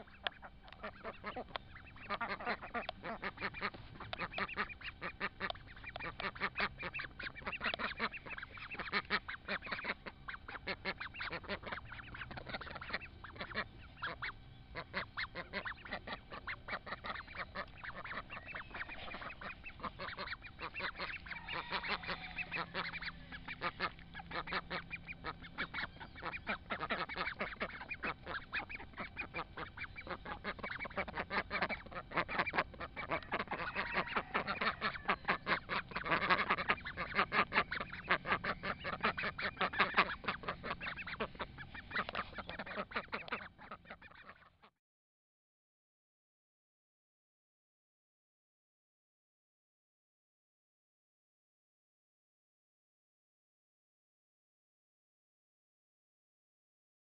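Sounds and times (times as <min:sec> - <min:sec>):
duck bills nibbling clicks: 0:00.0 - 0:09.8, 0:38.9 - 0:43.5
young ducks calling: 0:00.0 - 0:44.7.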